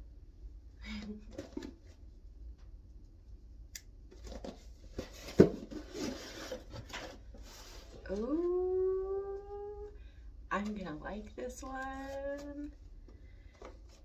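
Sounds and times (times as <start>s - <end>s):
paper packaging rustling: 4.1s - 8.2s
woman saying ooh: 8.1s - 10.0s.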